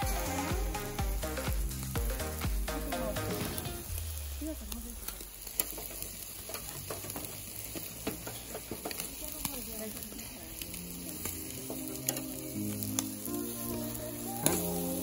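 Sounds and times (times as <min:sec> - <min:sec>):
dance music: 0:00.0 - 0:04.5, 0:11.4 - 0:15.0
chicken sizzling on grill: 0:00.0 - 0:15.0
metal spatula clicking on grate: 0:05.1 - 0:10.2.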